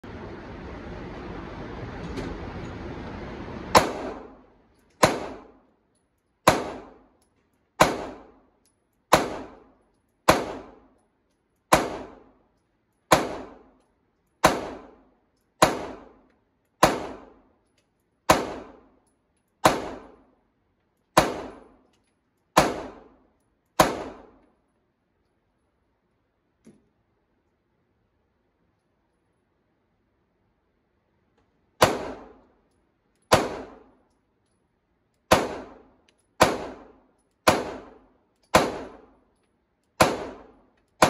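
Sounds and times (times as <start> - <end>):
pistol shots echoing: 3.7 - 4.4, 5.0 - 5.6, 6.4 - 7.1, 7.8 - 8.4, 9.1 - 9.7, 10.3 - 10.9, 11.7 - 12.3, 13.1 - 13.7, 14.4 - 15.0, 15.6 - 16.2, 16.8 - 17.4, 18.3 - 18.9, 19.6 - 20.2, 21.2 - 21.8, 22.6 - 23.2, 23.8 - 24.4, 31.8 - 32.4, 33.3 - 34.0, 35.3 - 39.2, 40.0 - 41.0.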